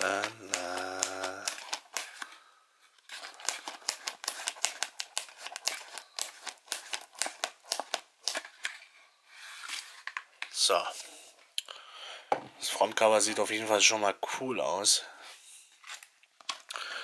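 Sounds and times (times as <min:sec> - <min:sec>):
card crackling clicks: 0:00.0 - 0:02.3, 0:03.2 - 0:08.6.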